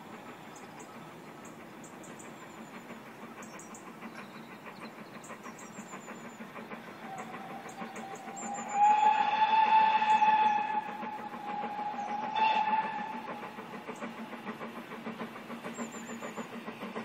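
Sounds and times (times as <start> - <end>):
train rumble: 0.0 - 17.0
steam locomotive whistle: 7.0 - 13.7.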